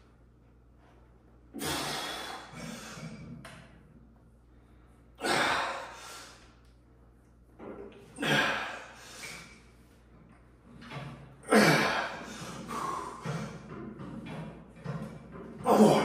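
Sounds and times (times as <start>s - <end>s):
man breathing hard: 1.6s - 3.4s, 8.2s - 9.7s, 11.5s - 13.7s.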